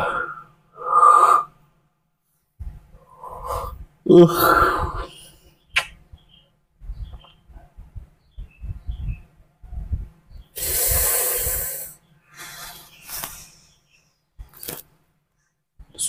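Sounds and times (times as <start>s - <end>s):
man breathing loudly: 10.6s - 13.6s.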